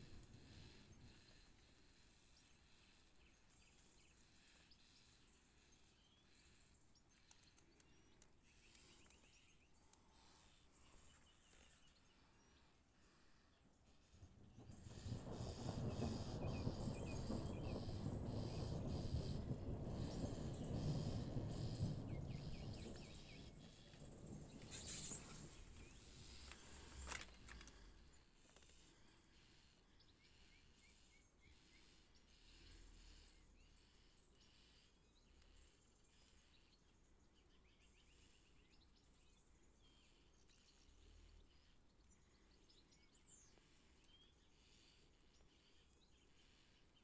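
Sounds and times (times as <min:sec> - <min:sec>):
faint bird chirps: 0:00.0 - 0:47.0
faint outdoor hiss: 0:00.0 - 0:47.0
distant thunder rumble: 0:14.2 - 0:27.7.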